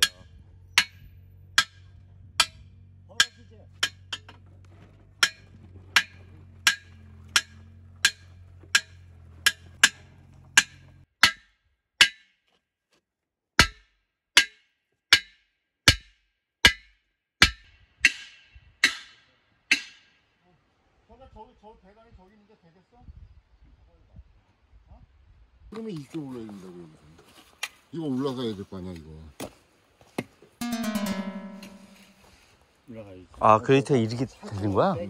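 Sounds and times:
wood-block knocks: 5.2s - 10.0s, 30.6s - 32.3s
low steady hum: 30.6s - 32.5s.

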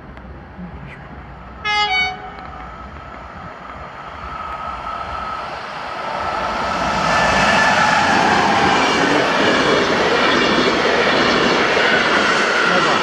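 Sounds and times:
approaching train rumble: 0.0s - 13.0s
train horn blast: 1.6s - 2.6s.

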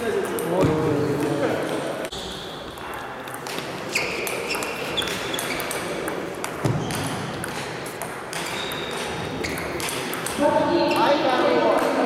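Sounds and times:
table tennis ball clicking: 3.2s - 12.0s.

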